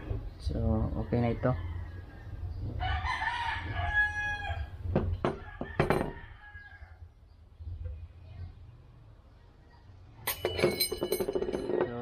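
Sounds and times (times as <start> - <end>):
rooster crowing: 1.2 - 7.1
metal part knocking on table: 10.3 - 12.0.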